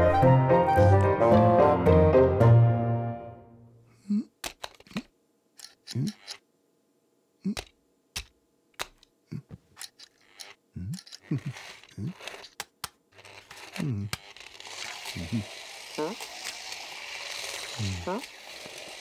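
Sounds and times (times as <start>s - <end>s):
man murmuring: 3.9s - 5.0s, 5.8s - 6.4s, 7.4s - 7.7s, 9.2s - 9.6s, 10.8s - 12.4s, 13.7s - 14.2s, 15.1s - 16.2s, 17.8s - 18.2s
plastic clicks and clacks: 4.4s - 6.4s, 7.6s - 9.1s, 9.8s - 15.1s.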